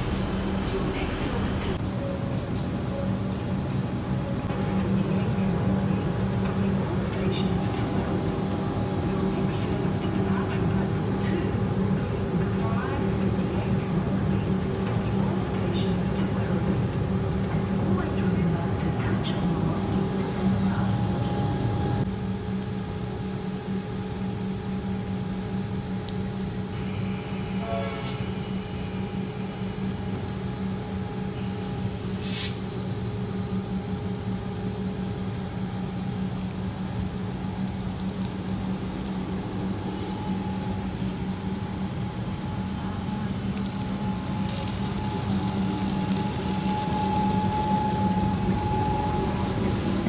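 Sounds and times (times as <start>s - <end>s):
electric train arriving: 0.0s - 4.8s, 26.8s - 32.4s, 38.5s - 50.0s
passing train rumble: 0.0s - 22.1s, 36.6s - 50.0s
electric hum of standing train: 0.0s - 50.0s
short hiss: 32.0s - 32.7s.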